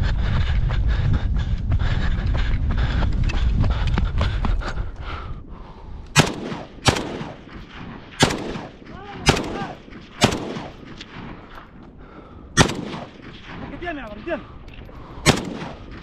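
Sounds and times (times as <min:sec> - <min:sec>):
rifle shots: 0:06.2 - 0:11.6, 0:12.6 - 0:14.3, 0:15.2 - 0:16.0.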